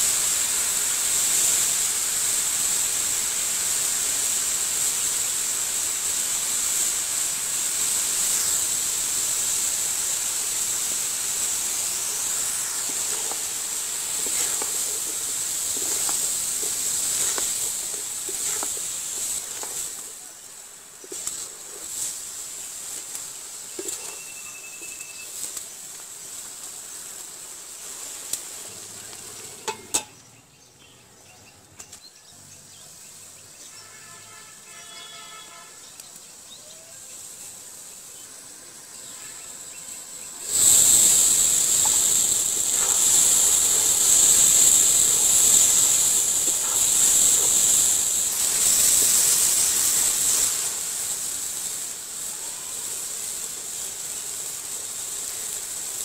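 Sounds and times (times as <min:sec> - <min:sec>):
curry sizzling in a pan: 0:00.0 - 0:30.3, 0:32.5 - 0:56.0
spatula stirring: 0:11.3 - 0:20.2, 0:21.0 - 0:24.3, 0:40.4 - 0:50.8.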